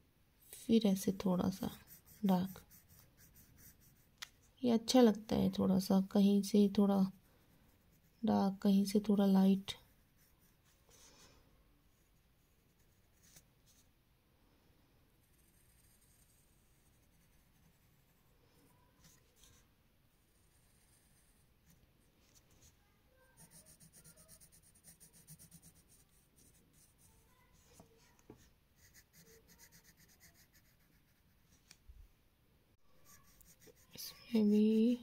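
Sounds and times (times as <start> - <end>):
pencil scratching on paper: 1.0 - 11.2, 11.9 - 13.9, 15.2 - 18.3, 19.0 - 31.6, 32.9 - 35.0.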